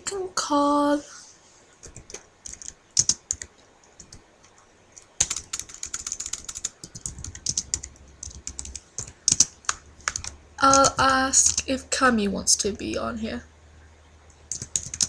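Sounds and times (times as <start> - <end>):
typing on computer keyboard: 1.8 - 4.2, 5.0 - 11.7, 14.5 - 15.0.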